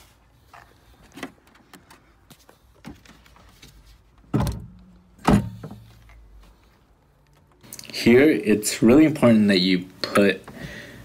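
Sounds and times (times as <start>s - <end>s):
car battery heavy thuds: 4.3s - 5.9s.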